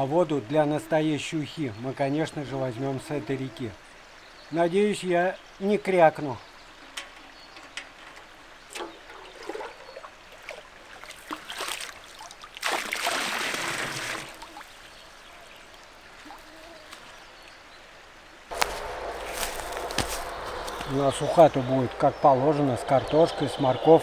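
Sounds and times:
river trickling: 0.0 - 24.0
small splashes and knocks: 6.8 - 15.0
pot filling with water: 8.7 - 14.7.

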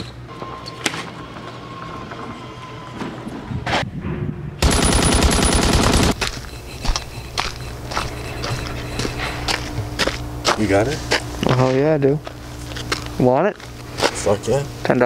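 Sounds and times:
machine-gun fire: 4.6 - 6.2.

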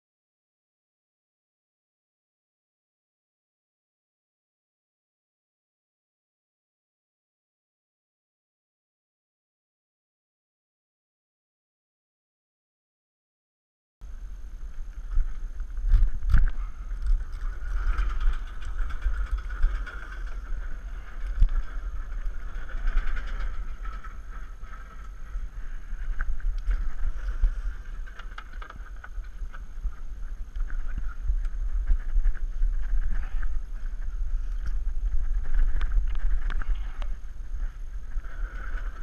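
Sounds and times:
wind buffeting microphone: 14.1 - 39.0.

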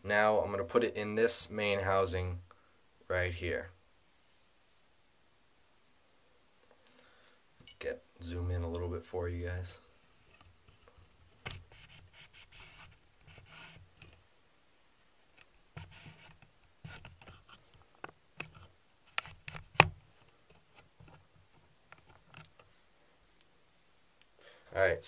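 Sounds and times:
rubbing and scraping handling noises: 9.9 - 14.3, 15.3 - 24.2.

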